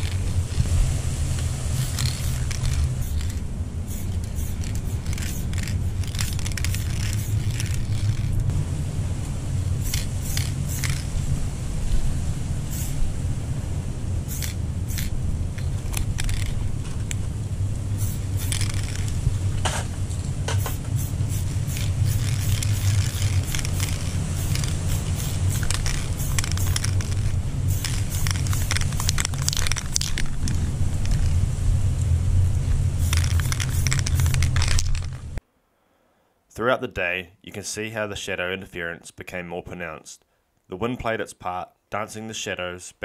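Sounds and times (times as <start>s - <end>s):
aerosol spray can hissing: 0.0s - 0.7s, 1.6s - 8.4s, 9.8s - 11.1s, 12.6s - 13.0s, 14.2s - 16.6s, 18.0s - 19.2s, 20.5s - 30.5s, 33.0s - 35.2s.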